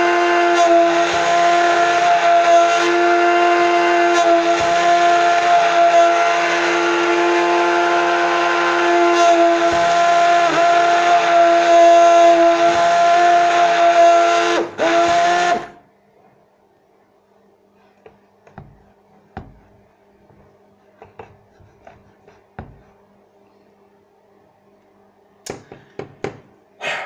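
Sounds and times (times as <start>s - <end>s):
immersion blender whine: 0.0s - 15.8s.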